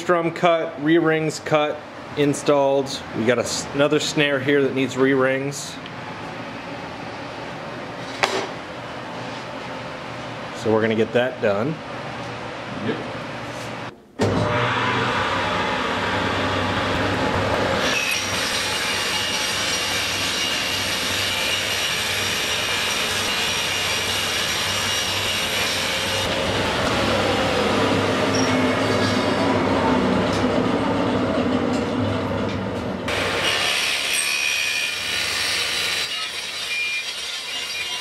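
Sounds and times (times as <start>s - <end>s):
table saw motor hum: 14.2s - 32.3s
saw cutting whine: 14.4s - 31.2s, 33.1s - 38.0s.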